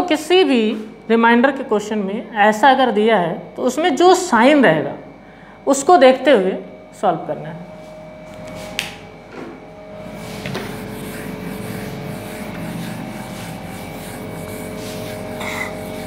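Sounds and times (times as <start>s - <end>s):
duster rubbing on whiteboard: 10.0s - 16.0s.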